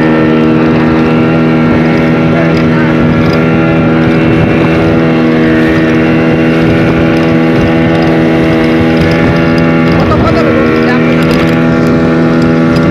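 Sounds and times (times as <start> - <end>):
speedboat engine droning: 0.0 - 12.9.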